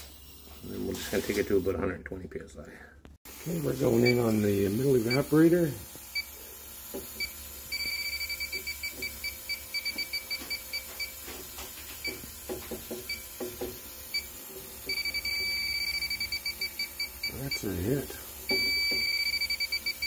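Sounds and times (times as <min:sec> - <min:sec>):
electronic detector beeping: 0:03.8 - 0:05.5, 0:06.1 - 0:06.4, 0:07.1 - 0:11.4, 0:12.0 - 0:12.4, 0:13.0 - 0:13.4, 0:14.1 - 0:20.0.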